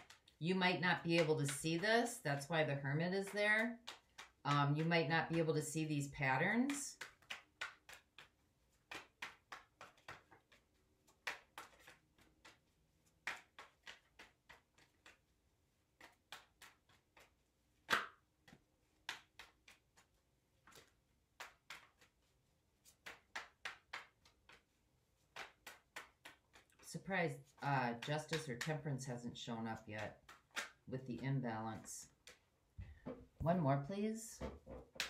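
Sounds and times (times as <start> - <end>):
cards being shuffled: 0.0 - 5.8, 6.5 - 32.6
sharp card snap: 17.8 - 18.2.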